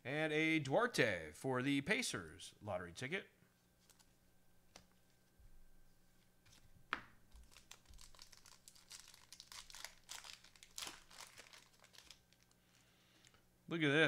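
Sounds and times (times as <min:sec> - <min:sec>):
thin plastic crinkling: 0:07.3 - 0:13.4.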